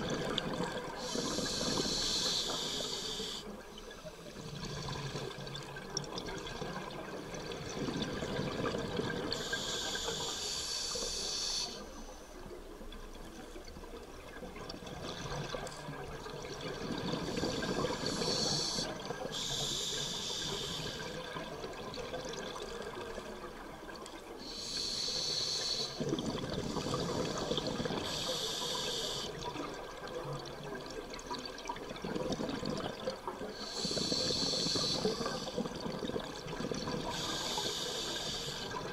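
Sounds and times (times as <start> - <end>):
regulator inhalation hiss: 1.0 - 3.6, 9.4 - 12.1, 17.2 - 21.2, 24.4 - 26.0, 26.7 - 29.4, 33.6 - 35.7, 37.0 - 38.8.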